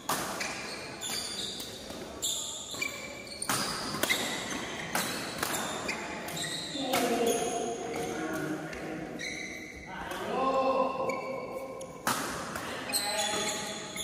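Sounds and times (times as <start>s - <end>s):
sneaker squeaks on court: 0.0s - 8.4s, 9.1s - 9.9s, 11.0s - 12.2s, 12.9s - 14.0s
rackets striking shuttlecock: 2.7s - 8.9s.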